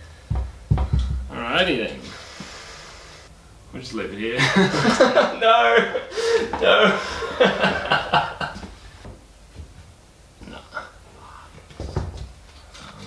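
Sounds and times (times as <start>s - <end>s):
dull thump: 0.3s - 1.3s
man speaking: 1.3s - 2.2s, 3.7s - 7.7s.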